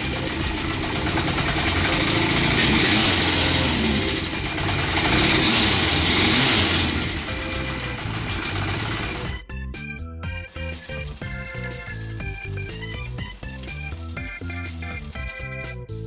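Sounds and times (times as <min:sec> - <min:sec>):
motorcycle engine revving: 0:00.0 - 0:09.3.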